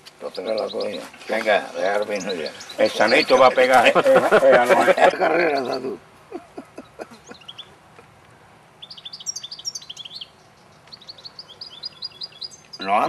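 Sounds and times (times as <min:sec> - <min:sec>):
finches twittering: 0:00.2 - 0:04.0, 0:04.9 - 0:06.0, 0:06.8 - 0:07.8, 0:08.7 - 0:13.0.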